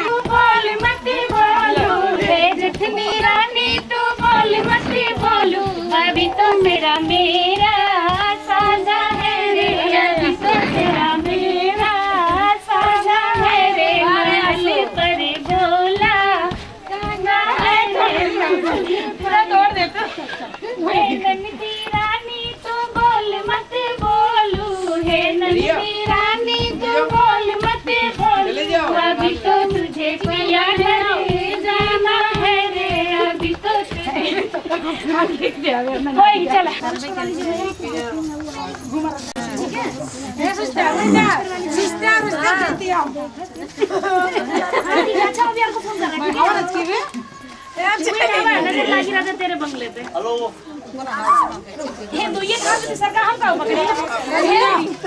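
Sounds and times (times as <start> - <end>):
fast steady drumbeat: 0.0 - 20.2, 20.8 - 38.1
quick percussive beat: 0.0 - 35.4
women singing: 0.0 - 38.4, 39.0 - 49.9, 52.1 - 55.0.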